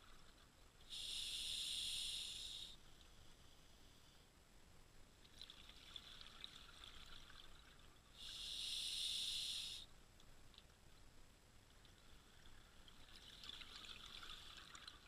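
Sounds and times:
diver breathing through regulator: 0.9 - 2.8, 8.2 - 9.8
crackling bubbles: 5.2 - 9.3, 11.6 - 15.0.

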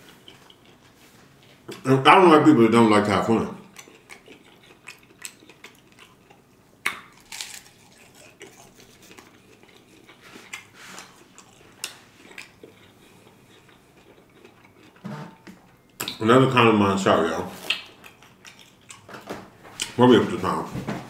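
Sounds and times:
chewing crunchy taco: 0.0 - 1.9, 3.6 - 16.2, 17.2 - 19.2.

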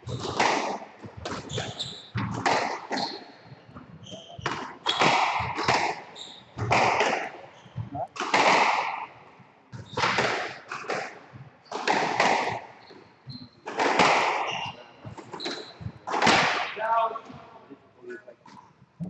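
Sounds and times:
squash ball hitting rackets and walls: 0.0 - 16.8
short squeaks: 1.5 - 2.2, 14.4 - 15.9.

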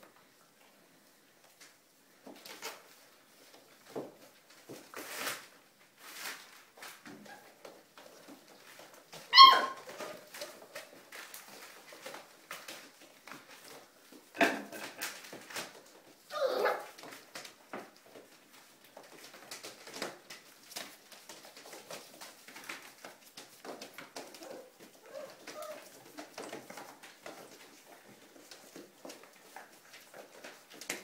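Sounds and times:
puppies scuffling over newspaper: 1.4 - 31.0
puppy crying: 9.3 - 10.2, 16.3 - 17.0.

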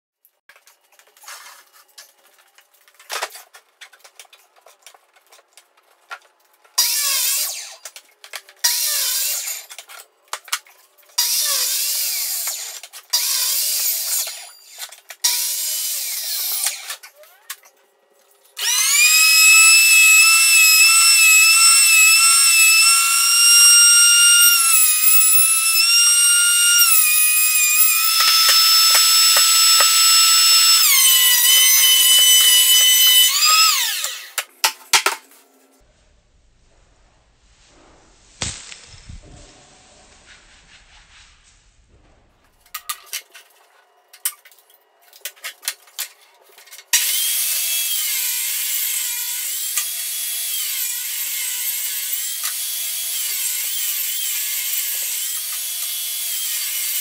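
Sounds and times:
thickness planer running: 18.6 - 34.3
jointer motor whine: 18.6 - 34.4
miter saw crosscuts: 18.6 - 34.4, 47.0 - 57.0.

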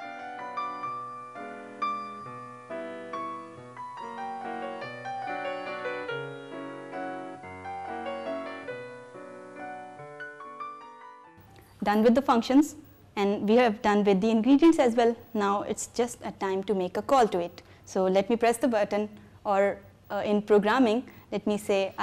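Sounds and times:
piano music: 0.0 - 12.9.

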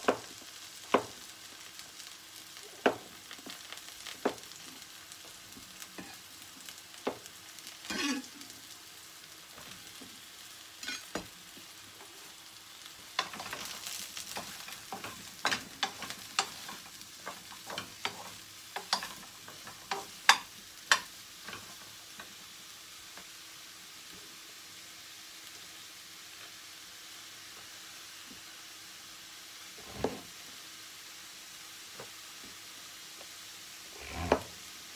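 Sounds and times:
mushroom pieces clattering into pan: 13.0 - 22.1
rustle: 33.9 - 34.7.

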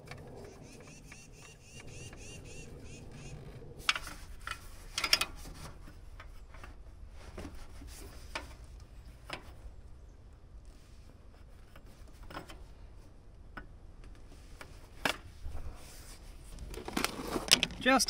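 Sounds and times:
hands handling rubber hose: 14.0 - 17.9.

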